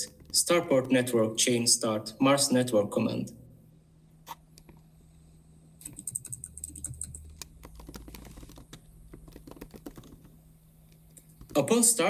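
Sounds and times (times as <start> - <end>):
typing on a keyboard: 5.8 - 10.3.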